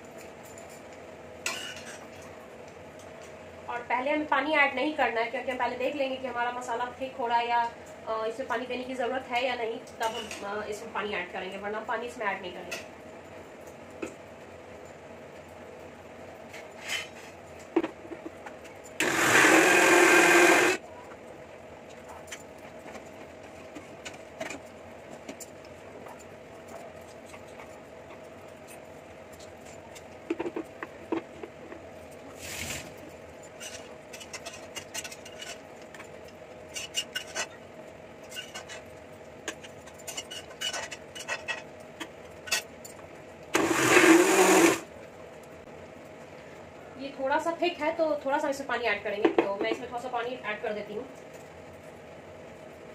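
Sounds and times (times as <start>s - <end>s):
mixer grinder running: 19.0s - 20.8s, 43.5s - 44.9s.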